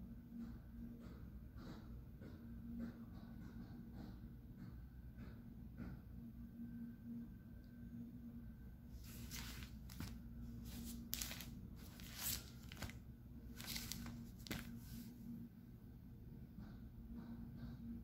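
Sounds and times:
crinkly diaper rustling: 0:09.0 - 0:15.1.

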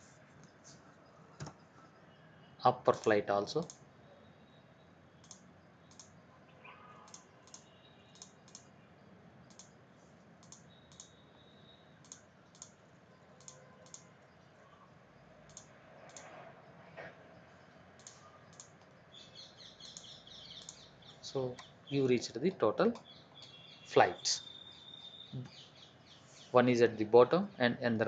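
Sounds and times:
computer mouse clicking: 0:03.6 - 0:03.8, 0:05.2 - 0:06.2, 0:07.1 - 0:08.7, 0:09.4 - 0:11.2, 0:12.0 - 0:14.3, 0:15.4 - 0:16.4, 0:17.9 - 0:19.0, 0:19.8 - 0:21.7.

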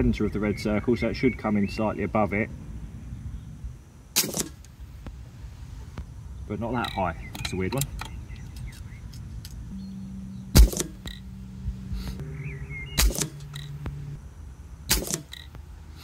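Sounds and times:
air rifle shot: 0:04.2 - 0:04.6, 0:10.5 - 0:11.2, 0:13.0 - 0:13.6, 0:14.9 - 0:15.4
sharp clicks: 0:06.8 - 0:09.7, 0:10.5 - 0:11.3, 0:13.0 - 0:14.1, 0:14.9 - 0:15.7.

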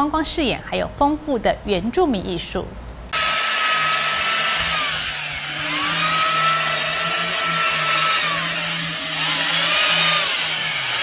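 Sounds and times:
electric chainsaw carving wood: 0:03.2 - 0:11.0.

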